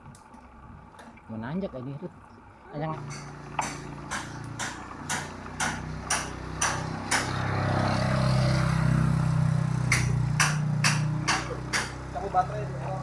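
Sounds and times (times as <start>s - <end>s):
motorcycle engine passing: 3.0s - 13.0s.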